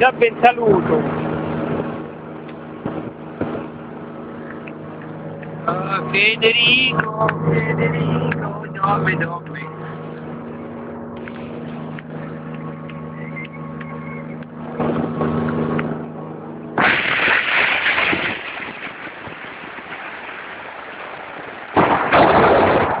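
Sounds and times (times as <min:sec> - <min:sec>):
motorboat engine humming: 0:00.0 - 0:21.8.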